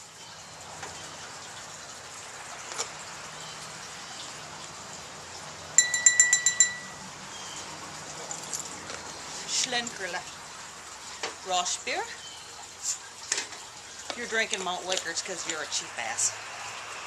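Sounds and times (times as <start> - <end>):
small bell struck rapidly: 5.8 - 7.0.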